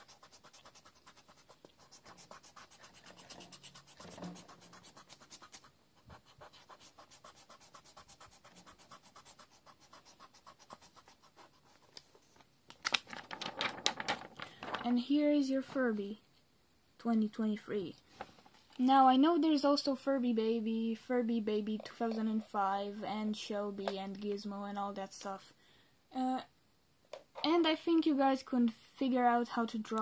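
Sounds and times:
eraser rubbing on paper: 0:00.0 - 0:12.3
paper rustling: 0:11.6 - 0:15.0.

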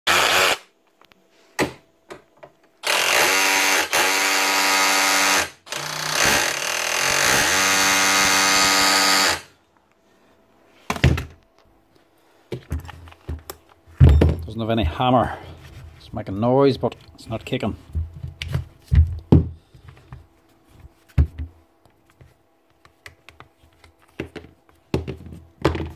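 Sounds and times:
hammer drill motor whirring: 0:00.1 - 0:00.7, 0:02.8 - 0:09.5.

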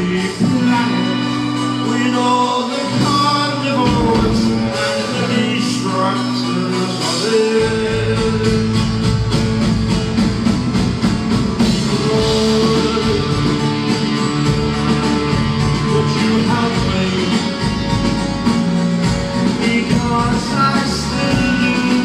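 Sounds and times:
live rock band playing: 0:00.0 - 0:22.0
steady drum beat: 0:03.8 - 0:05.5, 0:07.9 - 0:22.0.

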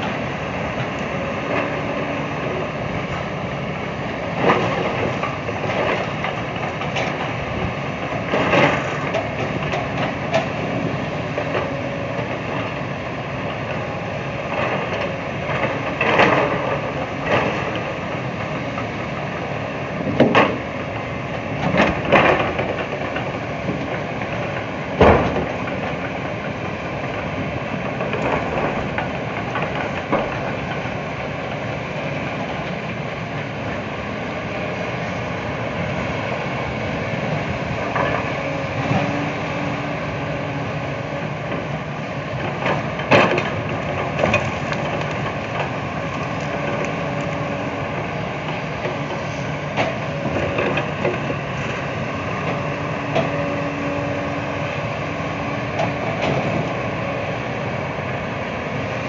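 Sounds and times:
diesel excavator engine running: 0:00.0 - 0:59.0.

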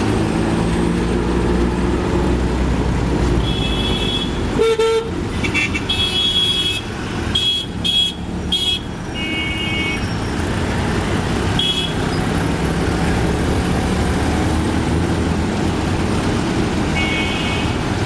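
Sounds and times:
busy city traffic: 0:00.0 - 0:18.0
vehicle horns tooting: 0:03.4 - 0:10.2, 0:11.6 - 0:12.0, 0:16.9 - 0:17.8.

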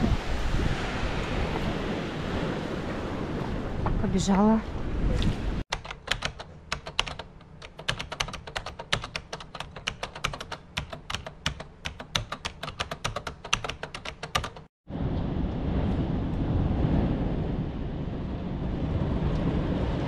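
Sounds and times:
rapid sharp clicks: 0:05.7 - 0:14.7.

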